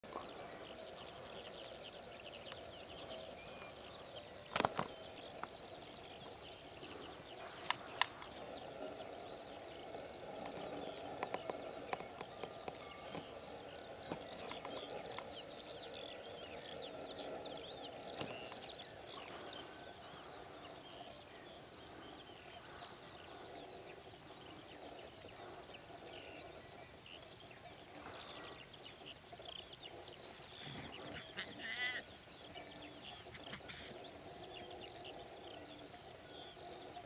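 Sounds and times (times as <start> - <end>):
birds chirping: 0.0 - 37.0
steady outdoor hum: 0.0 - 37.0
pulsed bleat-like animal call: 31.1 - 32.0.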